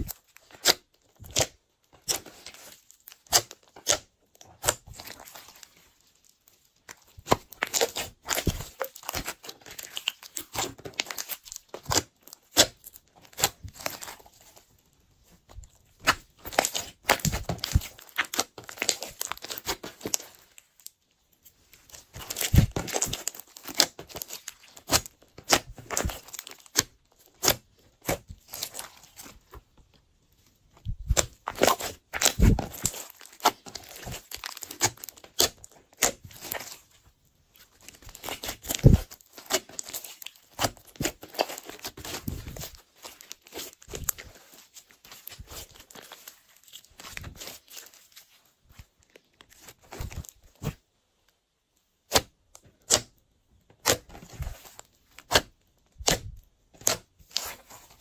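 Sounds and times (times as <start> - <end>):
hands squeezing sticky slime: 0.0 - 14.6, 15.9 - 21.0, 30.9 - 36.9, 37.5 - 48.3.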